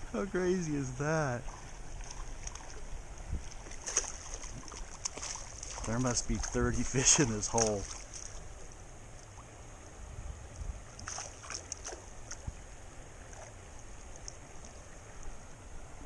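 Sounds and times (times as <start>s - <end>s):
shallow stream running: 0.0s - 16.0s
fish splashing in net: 3.5s - 8.4s, 11.0s - 12.5s.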